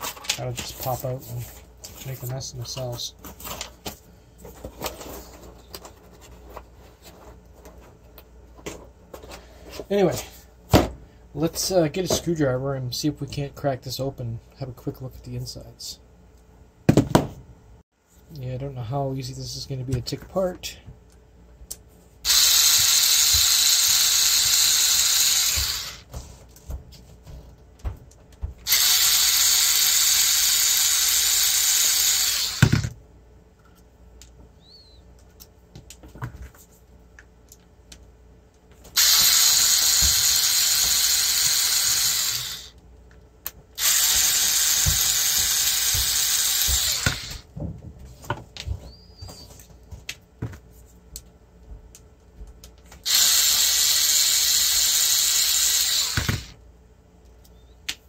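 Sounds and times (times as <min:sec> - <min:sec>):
electric screwdriver whirring: 0:22.3 - 0:26.1, 0:28.7 - 0:32.9, 0:39.0 - 0:42.8, 0:43.8 - 0:47.4, 0:53.0 - 0:56.6.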